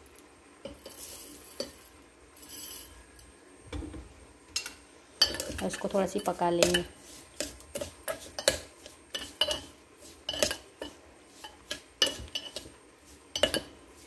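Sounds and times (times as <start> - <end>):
metal spoon scraping metal pot: 5.2 - 12.8, 13.4 - 13.7.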